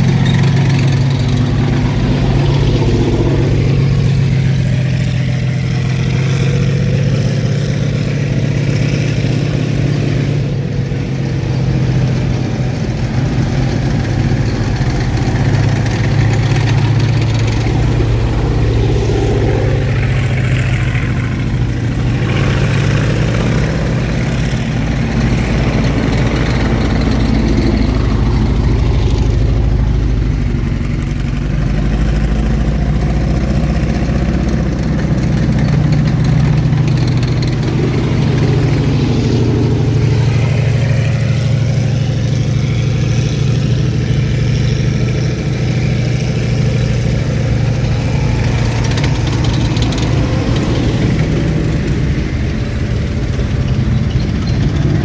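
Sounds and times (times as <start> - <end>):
military vehicle engines droning: 0.0 - 55.0.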